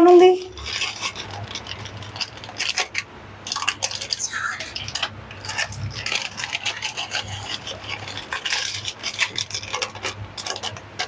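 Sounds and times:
plastic wrapper crinkling: 0:00.4 - 0:11.0.

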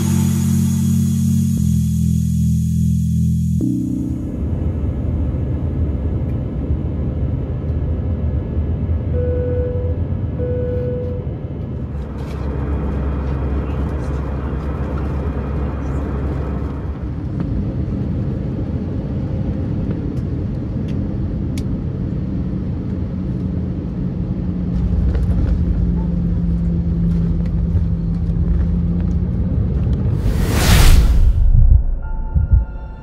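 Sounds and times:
steady low hum: 0:00.0 - 0:22.8, 0:30.0 - 0:33.0
jet engines and airflow rumble: 0:03.6 - 0:33.0.

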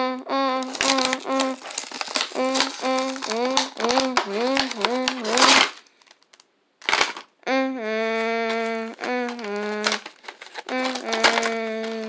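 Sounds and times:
person humming a slow tune: 0:00.0 - 0:01.6, 0:02.2 - 0:05.5, 0:07.4 - 0:12.0
packaging being torn: 0:00.6 - 0:07.3, 0:08.2 - 0:12.0.

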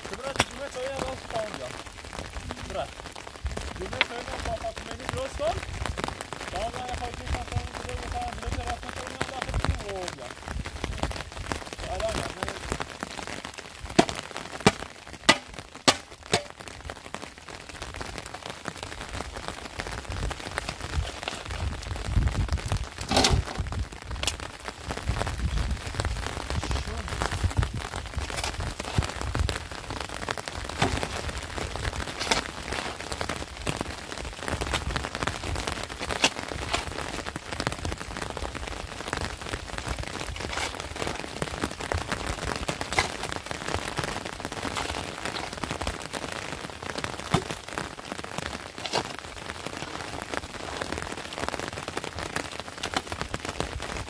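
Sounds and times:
rain pattering: 0:00.0 - 0:54.0
mud tipped into metal wheelbarrow: 0:23.0 - 0:23.6.

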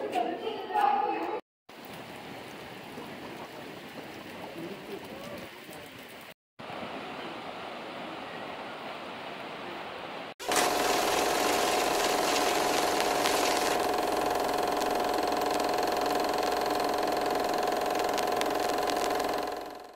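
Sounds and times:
mechanical hum: 0:10.4 - 0:19.9.

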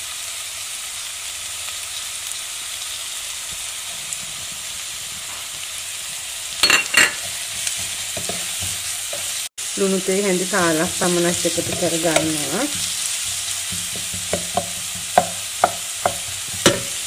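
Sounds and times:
onion frying in hot oil: 0:00.0 - 0:17.0
wooden spatula scraping pan: 0:07.2 - 0:09.4, 0:11.3 - 0:17.0.

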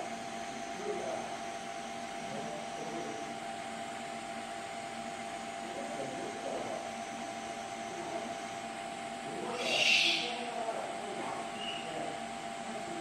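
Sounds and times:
machinery hum: 0:00.0 - 0:13.0
faint murmur: 0:05.6 - 0:13.0.

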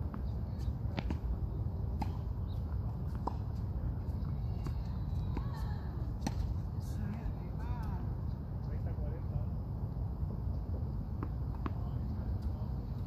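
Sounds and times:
tennis balls struck with rackets: 0:00.0 - 0:07.9
balls bouncing on hard court: 0:00.9 - 0:01.4.

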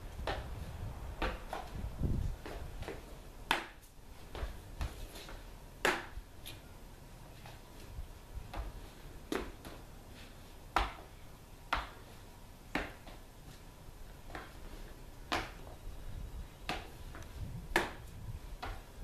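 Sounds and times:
fighting sticks swishing: 0:16.6 - 0:19.0.

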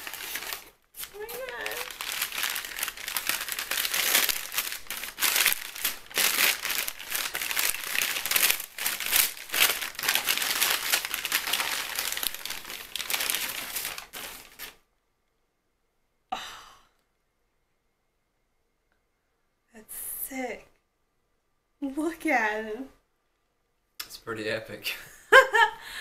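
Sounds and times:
tissue paper crinkling and rustling: 0:00.0 - 0:14.8.

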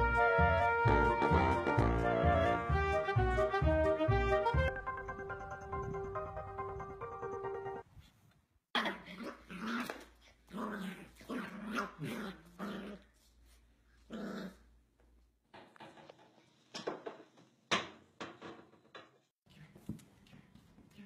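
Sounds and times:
puppy growling and yapping: 0:08.8 - 0:13.2, 0:14.0 - 0:14.7.

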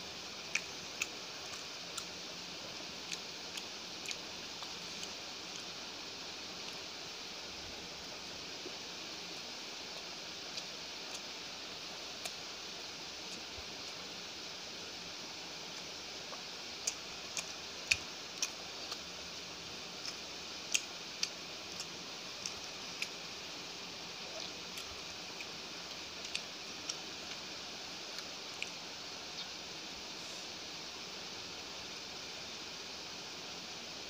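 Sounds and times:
steady hiss: 0:00.0 - 0:34.0
chewing clicks and smacks: 0:00.5 - 0:02.1, 0:03.0 - 0:05.7, 0:16.3 - 0:19.0, 0:24.3 - 0:27.4.

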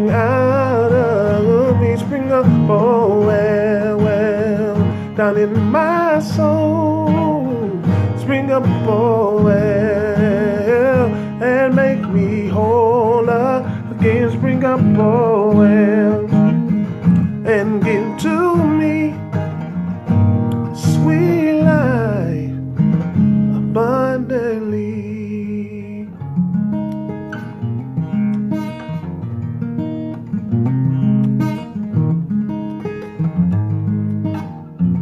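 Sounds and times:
man singing with vibrato: 0:00.0 - 0:19.6, 0:20.6 - 0:22.8, 0:23.5 - 0:26.2
strummed acoustic guitar: 0:00.0 - 0:35.0.

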